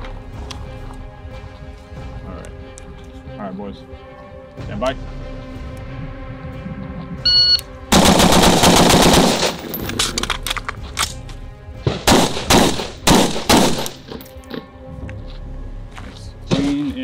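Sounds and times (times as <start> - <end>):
shot timer beep: 7.3 - 7.6
rifle shots: 7.9 - 10.1, 11.8 - 14.2.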